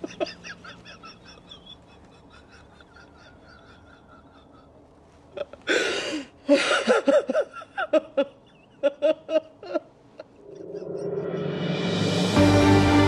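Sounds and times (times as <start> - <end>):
woman sobbing and wailing: 0.0 - 11.1
sharp gasping breath: 5.7 - 6.9.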